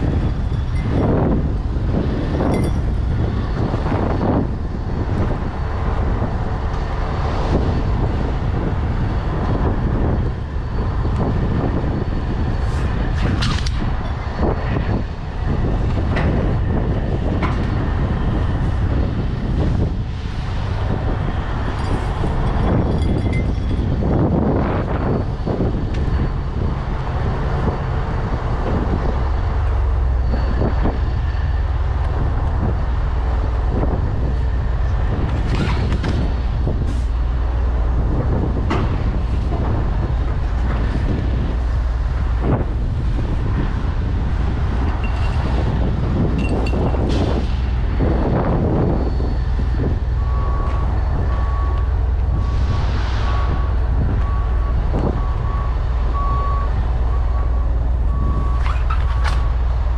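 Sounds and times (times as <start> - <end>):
low engine rumble: 0.0 - 59.9
reversing alarm beeping: 48.7 - 52.7, 53.3 - 59.5.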